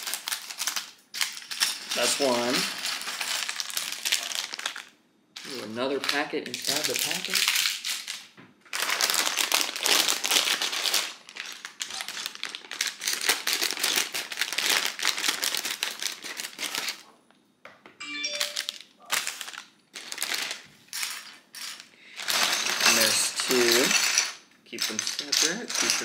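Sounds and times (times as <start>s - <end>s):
plastic bag crinkling: 0.0s - 17.1s, 18.4s - 20.7s.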